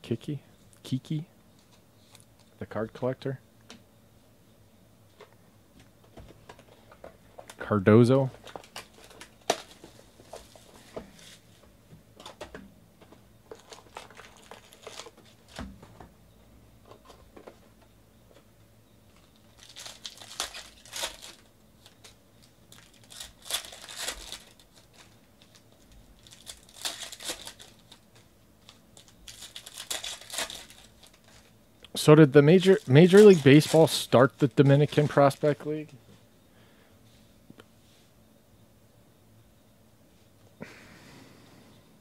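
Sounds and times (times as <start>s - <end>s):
foil wrappers crinkling and tearing: 8.4s - 11.5s, 13.5s - 15.6s, 19.1s - 35.6s.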